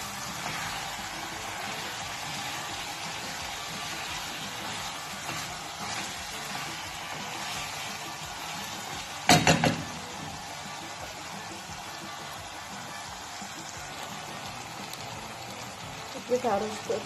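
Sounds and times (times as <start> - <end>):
food sizzling in oil: 0.0 - 17.0.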